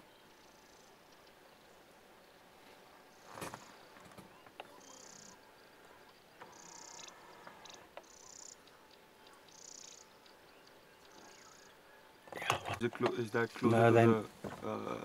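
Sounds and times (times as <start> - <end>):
insect buzzing call: 4.7 - 12.3.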